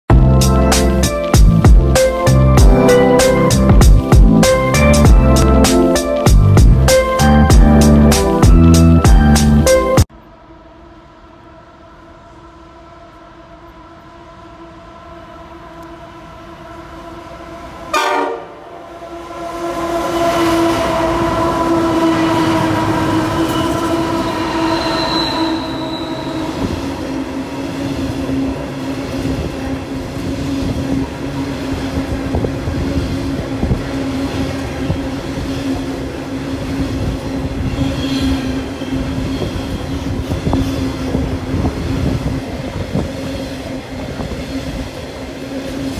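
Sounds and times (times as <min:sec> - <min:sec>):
diesel locomotives droning: 0:00.1 - 0:45.9
train wheels rumbling and clattering: 0:16.6 - 0:45.9.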